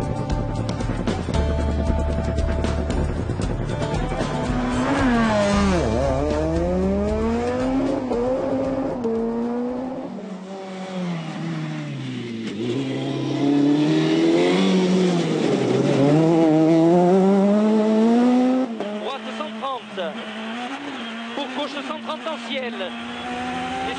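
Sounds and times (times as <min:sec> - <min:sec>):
rally car engine at full throttle: 0:00.0 - 0:23.9.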